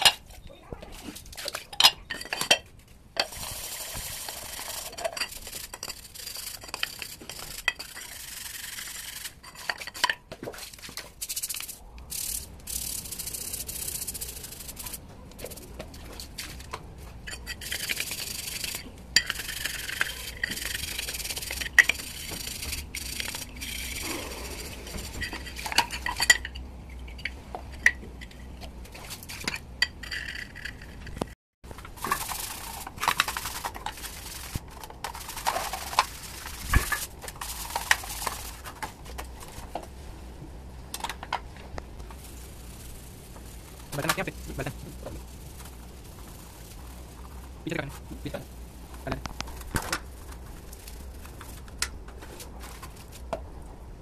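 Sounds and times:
stiff brush scrubbing metal: 0:03.2 - 0:29.8, 0:31.8 - 0:39.7, 0:42.0 - 0:53.3.

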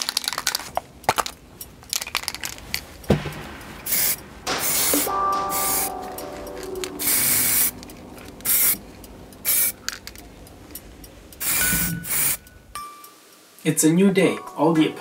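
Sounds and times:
aerosol spray can hissing: 0:11.4 - 0:12.4.

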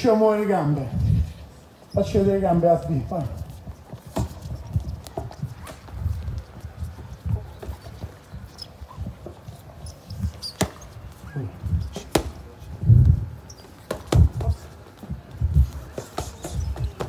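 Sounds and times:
gloved punches smacking pads: 0:12.0 - 0:12.4.

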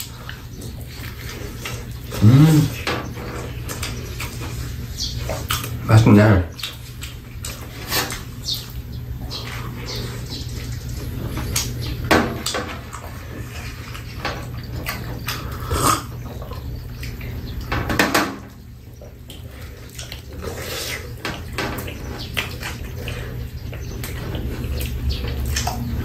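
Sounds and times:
chewing: 0:00.0 - 0:05.9, 0:06.5 - 0:17.7, 0:18.5 - 0:26.0
sipping: 0:00.0 - 0:12.1, 0:12.8 - 0:17.7, 0:18.5 - 0:26.0
steady low hum: 0:00.0 - 0:26.0.

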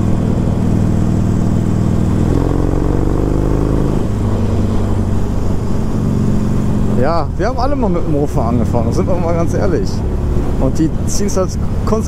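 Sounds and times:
motorcycle engine at road speed: 0:00.0 - 0:12.0
higher moped engine note: 0:02.0 - 0:05.9.

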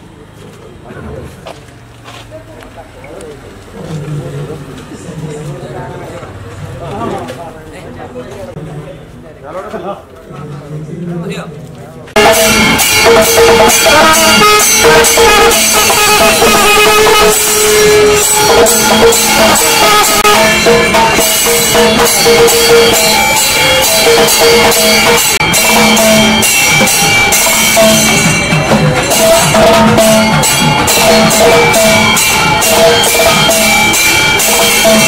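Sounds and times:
rapid busy drumming: 0:12.1 - 0:35.0
held melody notes: 0:12.2 - 0:35.0.

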